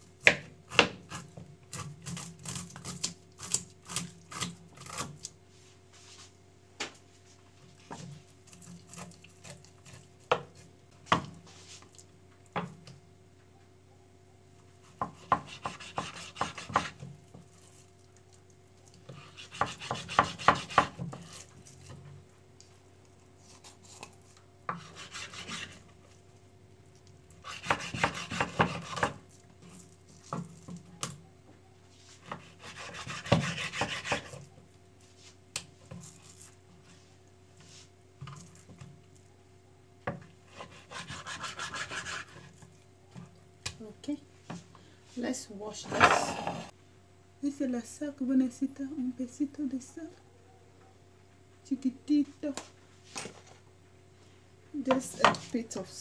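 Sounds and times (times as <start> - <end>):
knife sawing through fish: 24.8 - 25.8, 27.4 - 29.1, 32.2 - 34.4, 40.5 - 42.6.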